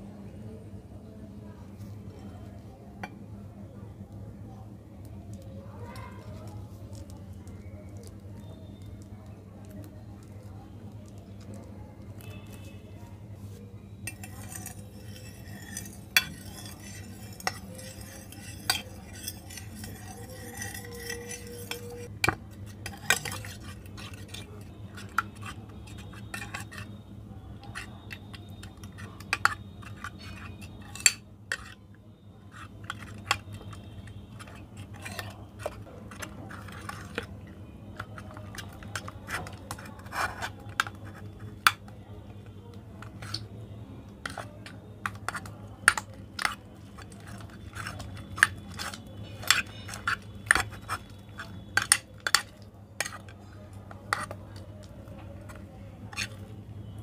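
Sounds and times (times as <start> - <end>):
wet stirring of slime: 5.3 - 27.0, 27.6 - 57.0
metal fork clinking on glass: 14.1 - 22.1.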